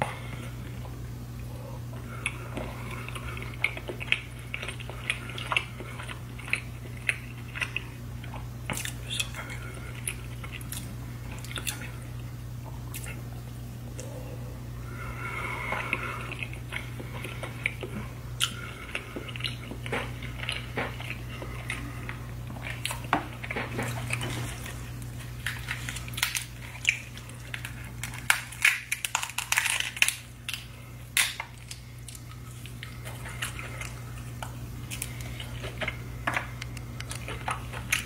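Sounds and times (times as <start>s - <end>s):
low hum: 0.0s - 38.0s
wet chewing sounds: 0.1s - 14.2s, 14.9s - 38.0s
food crackling as pulled apart: 24.1s - 35.8s.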